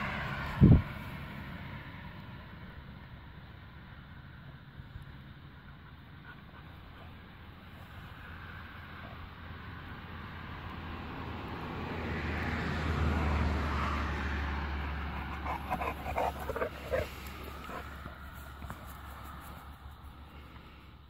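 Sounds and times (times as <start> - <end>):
dogs yipping: 15.0 - 18.1.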